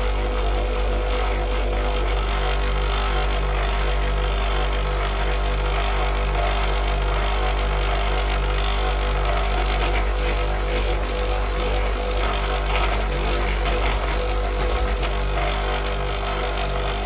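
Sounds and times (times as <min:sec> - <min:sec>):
electric burnisher humming: 0:00.0 - 0:03.4, 0:08.9 - 0:17.0.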